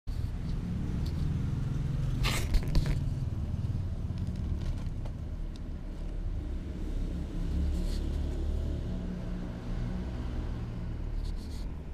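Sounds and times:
scraping rustle: 0:02.1 - 0:03.2, 0:11.1 - 0:11.8.

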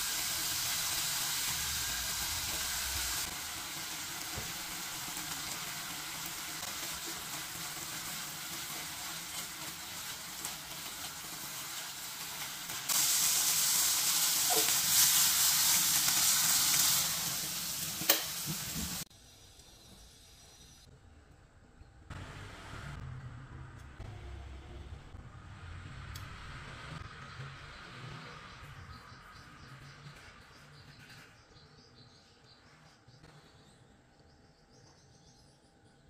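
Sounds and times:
chicken sizzling in a pan: 0:00.0 - 0:19.4.

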